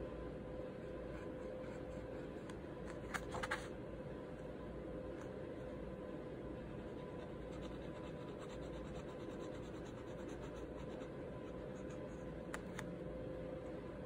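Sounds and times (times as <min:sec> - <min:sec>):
steady low hum: 0:00.0 - 0:14.0
pen scratching on paper: 0:06.7 - 0:12.3.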